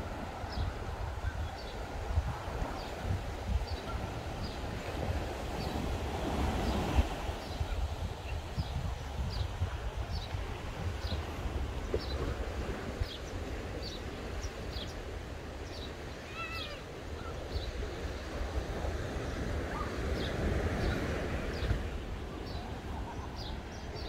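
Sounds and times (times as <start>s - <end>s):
surf washing: 0.0s - 24.0s
wind rumbling on microphone: 0.0s - 24.0s
birds chirping: 13.0s - 18.2s, 19.2s - 24.0s.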